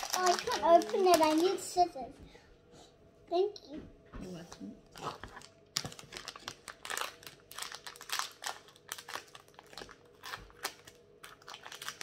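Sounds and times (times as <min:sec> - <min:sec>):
plastic wrapper crinkling: 0:00.0 - 0:01.8, 0:04.9 - 0:12.0.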